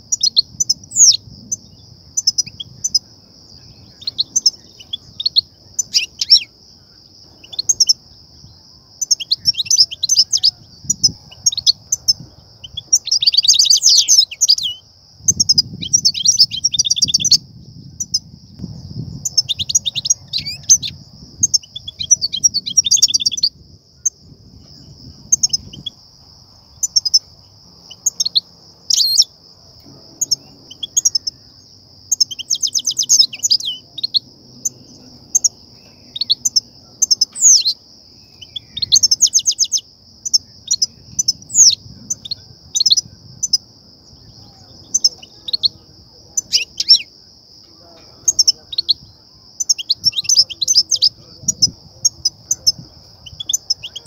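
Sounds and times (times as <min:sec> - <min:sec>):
steady high hiss: 0:00.0 - 0:54.0
goldfinch twittering: 0:03.8 - 0:06.5, 0:30.2 - 0:31.4.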